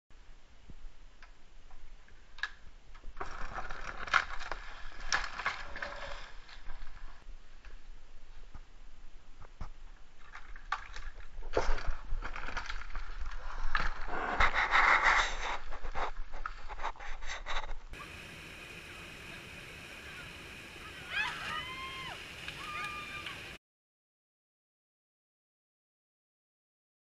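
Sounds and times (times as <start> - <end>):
steady outdoor hiss: 0.1 - 10.4, 13.4 - 23.6
unicycles knocking and scraping on rock: 1.6 - 8.7, 9.3 - 18.0
person yelling: 20.9 - 23.5.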